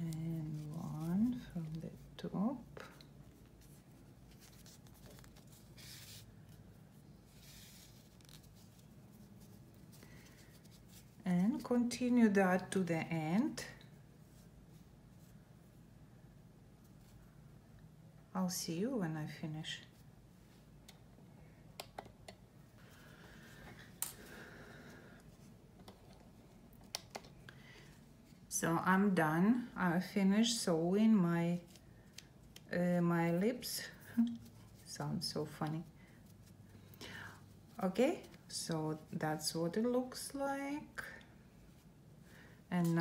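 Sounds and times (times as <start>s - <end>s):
yarn rustling through fabric: 0.0s - 15.8s, 27.8s - 42.0s.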